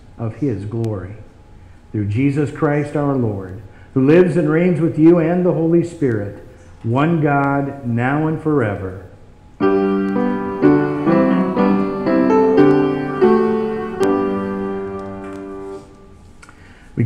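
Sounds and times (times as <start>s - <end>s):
piano playing held chords: 9.6s - 16.2s.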